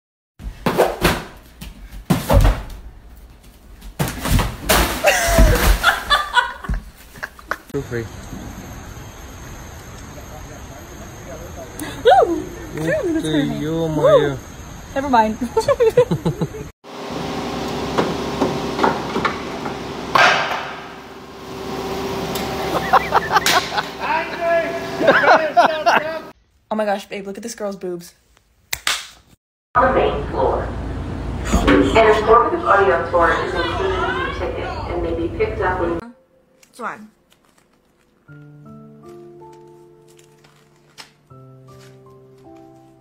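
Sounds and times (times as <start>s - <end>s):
person jumping thumps: 3.8s - 7.0s
steady shop hum: 16.1s - 26.4s, 29.8s - 38.1s.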